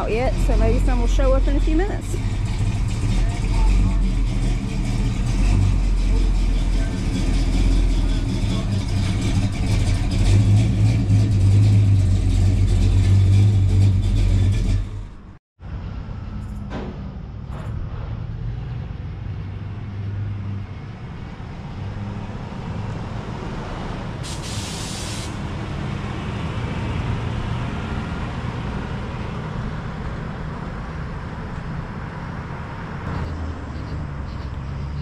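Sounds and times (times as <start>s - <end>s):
pickup truck engine driving past: 0.0s - 15.2s
sharp hiss of air: 24.2s - 25.4s.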